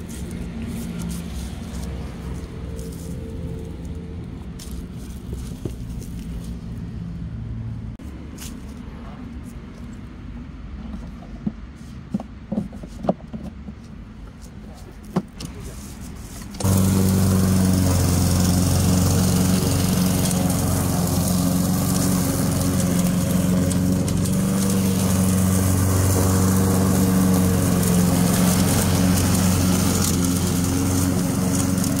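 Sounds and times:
lawn mower engine mulching leaves: 0.0s - 7.1s, 15.5s - 32.0s.

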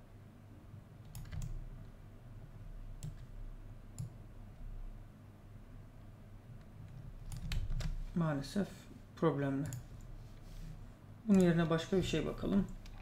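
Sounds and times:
low steady hum: 0.0s - 13.0s
computer mouse clicking: 1.0s - 1.6s, 3.0s - 3.3s, 3.9s - 4.2s, 6.6s - 8.0s, 9.6s - 10.1s, 11.3s - 11.7s.

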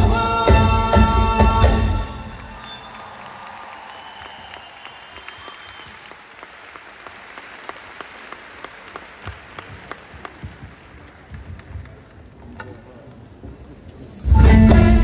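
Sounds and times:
audience applauding: 1.8s - 12.5s.

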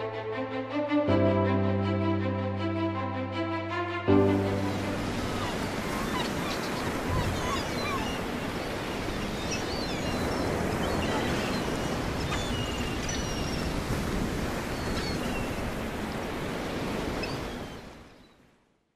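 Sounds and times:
ocean surf washing: 0.0s - 18.1s
seagulls calling: 4.3s - 15.8s.

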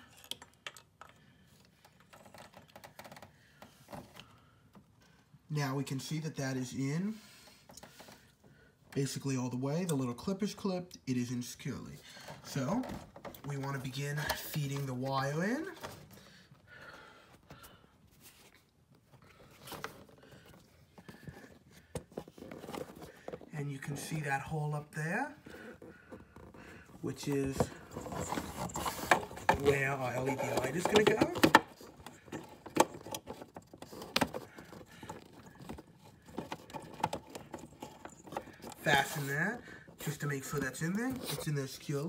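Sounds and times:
soft rustling: 11.8s - 42.0s.

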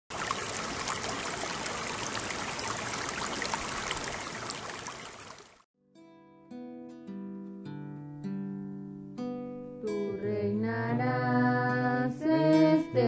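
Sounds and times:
running water rushing: 0.1s - 5.6s.

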